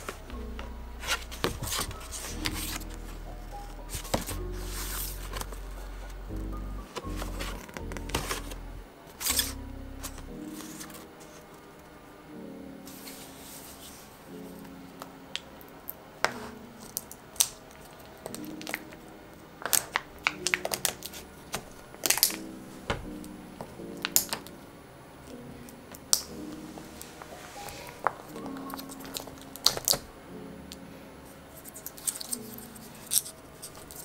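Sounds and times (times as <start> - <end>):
soft background music: 0.0 - 34.0
paper rustling: 1.0 - 6.2, 6.9 - 11.6, 19.6 - 23.2, 26.3 - 30.1, 31.6 - 34.0
nails tapping plastic cups: 27.7 - 30.1.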